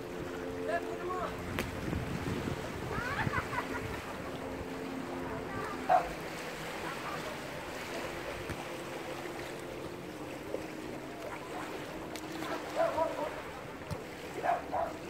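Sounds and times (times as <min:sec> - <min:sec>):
calm sea water washing: 0:00.0 - 0:15.0
wind: 0:00.0 - 0:15.0
faint distant voices: 0:04.7 - 0:15.0.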